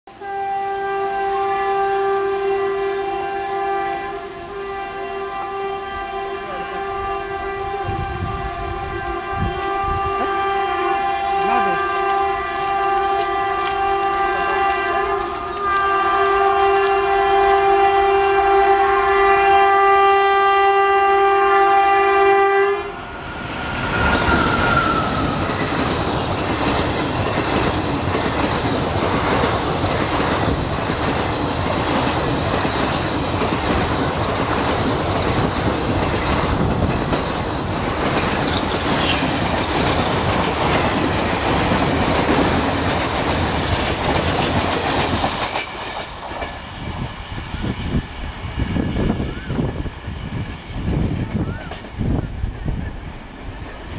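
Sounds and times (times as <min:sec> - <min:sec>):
train horn blast: 0:00.1 - 0:25.9
train wheels clickety-clack: 0:11.4 - 0:18.1, 0:23.8 - 0:53.9.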